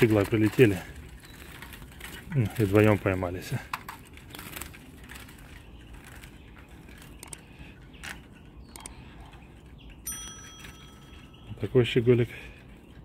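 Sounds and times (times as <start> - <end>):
faint rustling: 0.0 - 13.0
small clicks and knocks: 1.3 - 11.2.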